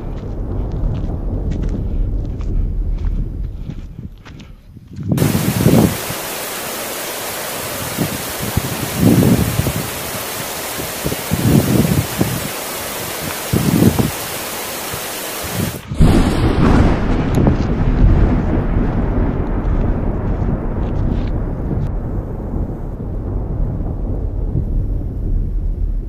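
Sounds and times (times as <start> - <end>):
low rumbles of thunder: 0.0 - 26.0
wind buffeting microphone: 0.0 - 26.0
heavy rain hissing: 5.2 - 17.3.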